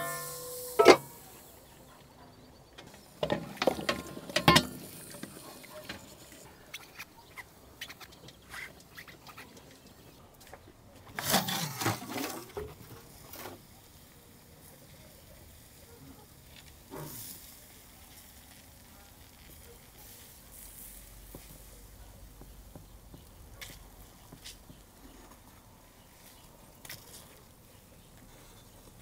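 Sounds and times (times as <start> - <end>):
metal lid clattering: 0.0 - 1.2, 2.8 - 6.3
faint hiss: 0.0 - 2.2.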